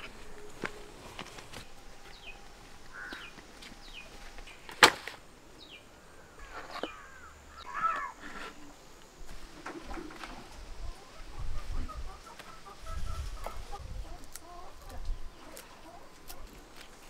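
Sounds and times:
warbling bird calls: 0:00.0 - 0:04.8, 0:05.4 - 0:08.8
birds chirping: 0:00.0 - 0:17.0.

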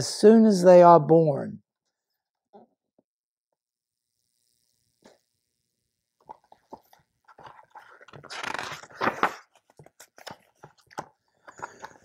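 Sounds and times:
book pages turning: 0:06.2 - 0:12.0.

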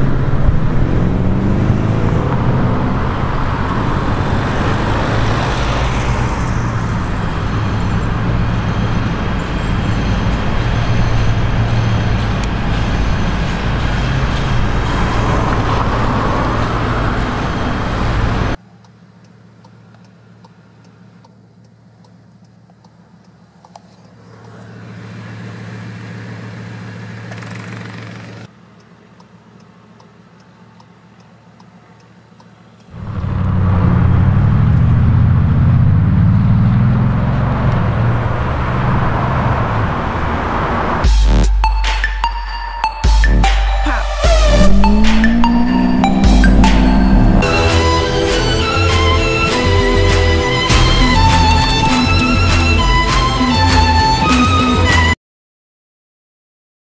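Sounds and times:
car engine deep rumble: 0:00.0 - 0:25.0, 0:32.9 - 0:41.4, 0:43.2 - 0:54.6
muffled low hum inside car: 0:33.0 - 0:37.8, 0:44.0 - 0:47.4.

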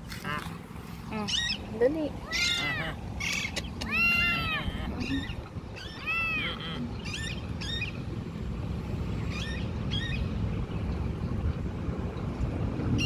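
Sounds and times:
low background rumble: 0:00.0 - 0:13.0
kitten mewing: 0:02.2 - 0:05.2.

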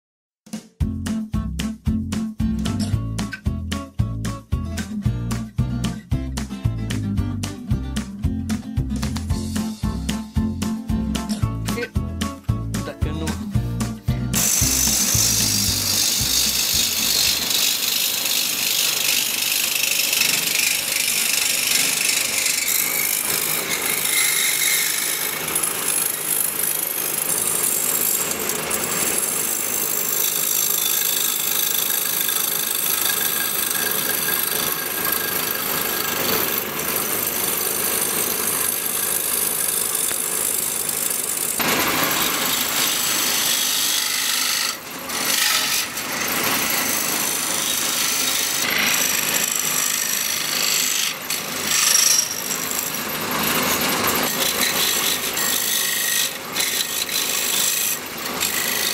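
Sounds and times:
wood lathe gouge cutting hiss: 0:14.4 - 0:58.9.

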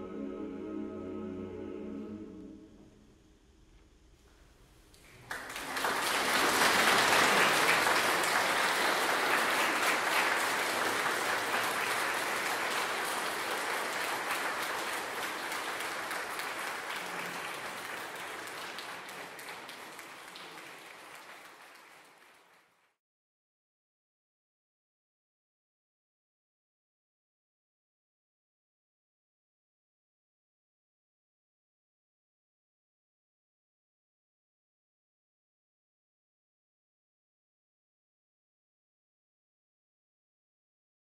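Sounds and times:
audience applauding: 0:05.0 - 0:23.0.

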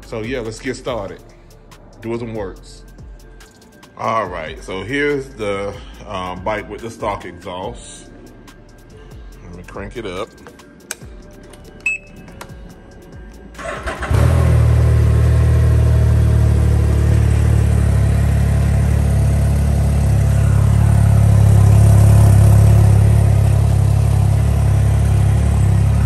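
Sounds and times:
engine starting and idling: 0:13.5 - 0:18.1.

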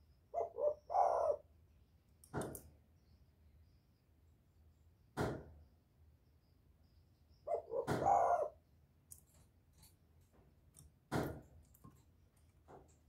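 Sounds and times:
dove cooing: 0:00.3 - 0:01.5, 0:07.4 - 0:08.6
bird knocking in wire cage: 0:11.1 - 0:12.0.

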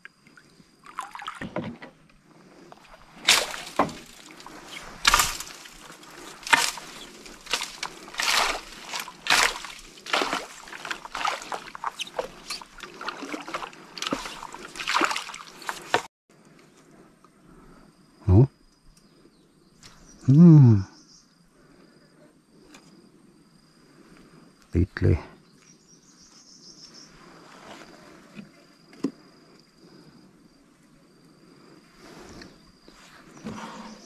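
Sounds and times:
water splashing and sloshing: 0:00.0 - 0:16.1.

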